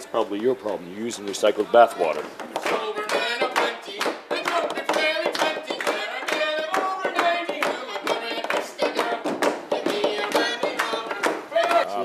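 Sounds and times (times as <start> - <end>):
voices singing lively song: 0.0 - 12.0
audience clapping along: 2.4 - 12.0.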